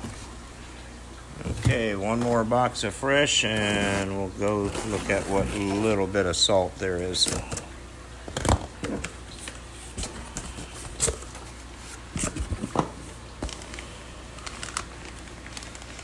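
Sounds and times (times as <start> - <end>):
cardboard flaps scraping and rustling: 3.4 - 6.0, 8.3 - 16.0
cardboard knocks and plastic crinkles: 8.3 - 13.8.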